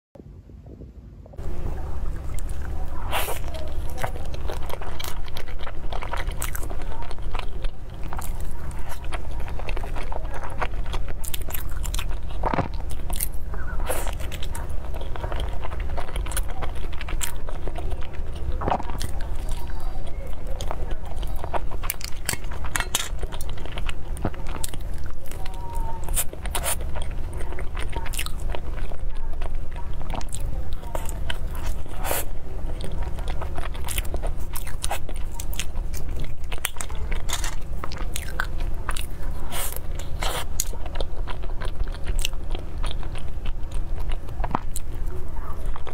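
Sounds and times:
person chewing pastries: 0:01.4 - 0:45.9.

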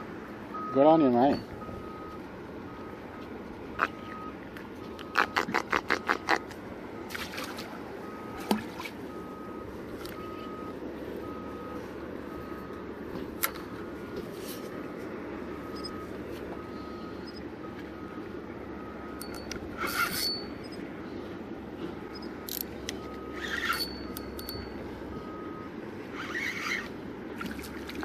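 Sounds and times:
faint high-pitched beep: 0:00.6 - 0:02.2.

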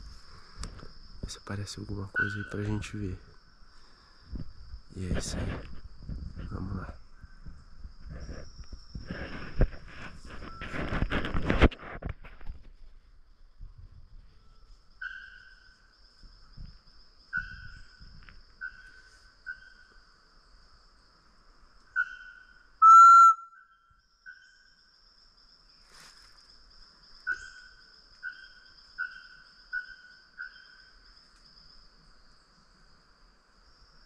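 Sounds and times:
short whistled notes: 0:22.8 - 0:23.7.

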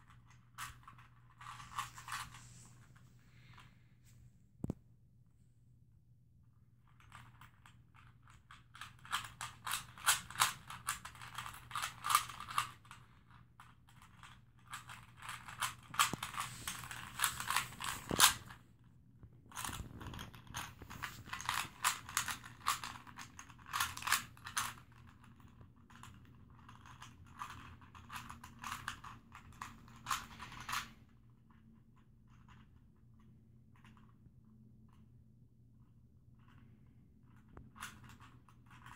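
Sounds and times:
puzzle cube clicking as turned: 0:09.0 - 0:12.8.

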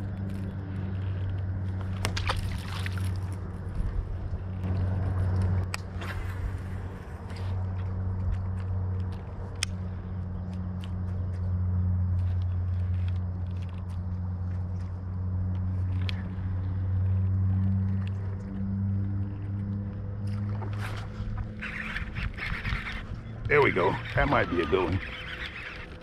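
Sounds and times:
electric trolling motor humming: 0:00.0 - 0:26.0
fishing reel clicks and ticks: 0:23.6 - 0:26.0.

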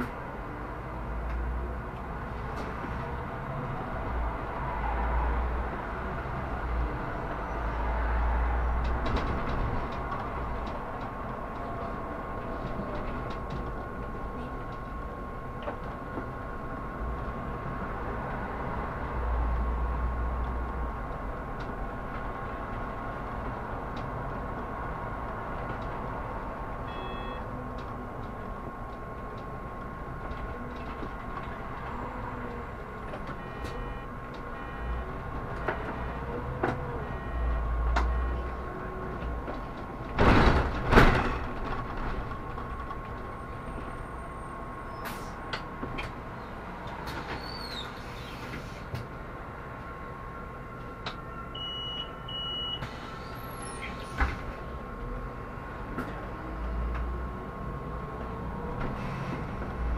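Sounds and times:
bus engine hum and whine: 0:00.0 - 0:59.9
short beeps: 0:26.8 - 0:27.5, 0:33.4 - 0:35.1, 0:37.0 - 0:38.6, 0:51.6 - 0:52.8.

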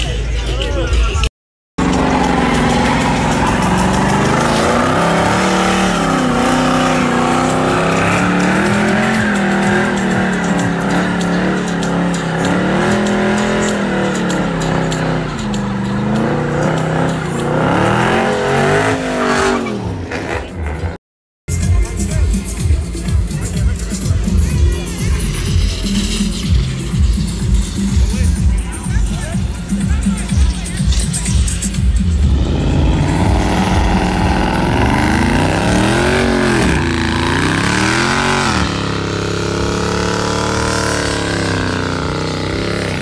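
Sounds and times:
car engine revving high: 0:01.8 - 0:21.0, 0:31.0 - 0:43.0
tires squealing: 0:01.8 - 0:21.0, 0:30.4 - 0:43.0.

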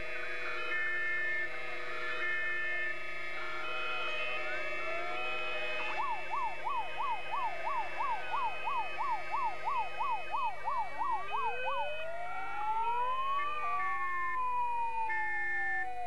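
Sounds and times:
slow rising siren wails: 0:00.0 - 0:16.0
fast yelping siren: 0:03.6 - 0:16.0.

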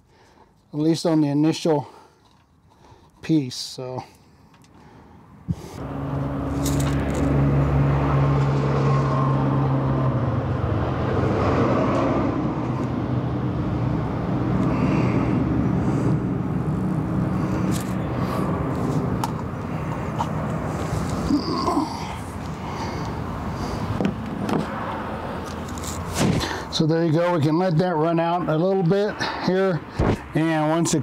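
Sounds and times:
vehicle engine running: 0:05.8 - 0:11.1, 0:12.6 - 0:21.3.

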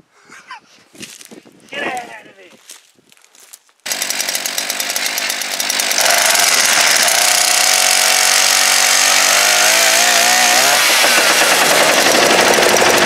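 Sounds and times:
small two-stroke engine revving: 0:03.9 - 0:13.0.

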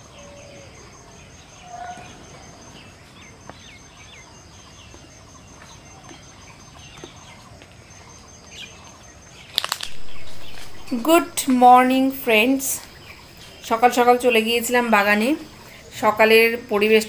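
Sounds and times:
background hiss: 0:09.6 - 0:17.0
birds chirping and calling: 0:09.7 - 0:15.8.

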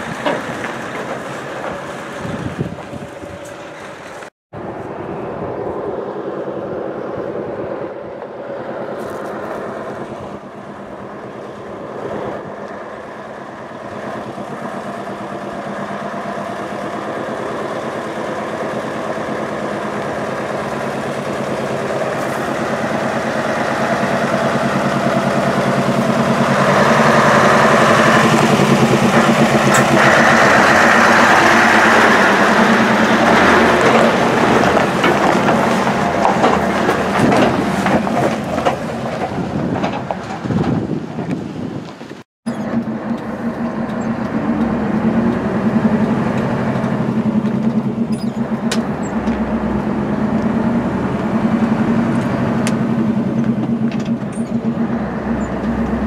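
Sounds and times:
diesel truck engine: 0:00.0 - 0:56.0.

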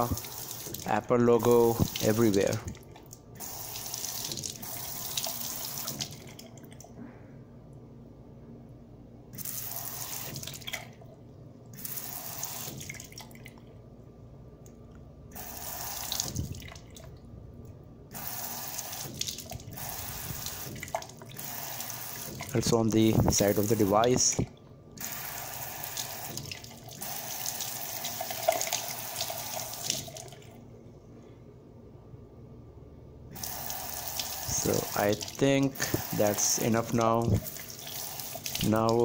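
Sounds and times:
faucet water splashing on phone: 0:00.0 - 0:06.9, 0:09.4 - 0:11.0, 0:11.8 - 0:13.6, 0:15.4 - 0:17.2, 0:18.1 - 0:24.3, 0:25.0 - 0:30.6, 0:33.4 - 0:39.0.

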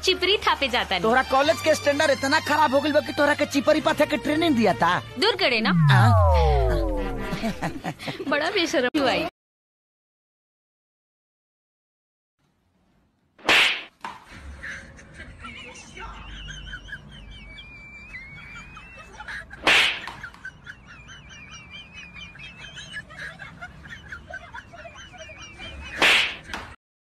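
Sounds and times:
loud sudden swish: 0:05.6 - 0:07.8, 0:13.4 - 0:13.9, 0:19.7 - 0:20.1, 0:26.0 - 0:26.4.

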